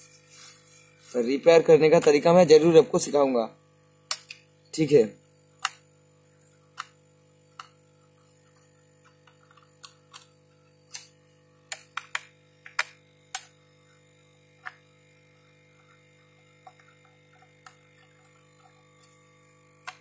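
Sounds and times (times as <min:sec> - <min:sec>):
faint steady hum: 0:00.0 - 0:20.0
screwdriver clicking and tapping: 0:11.7 - 0:13.5.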